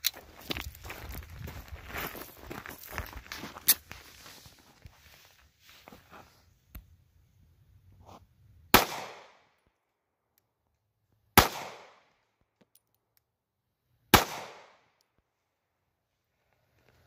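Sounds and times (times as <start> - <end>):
pistol shots: 8.7 - 9.5, 11.4 - 12.1, 14.1 - 14.9.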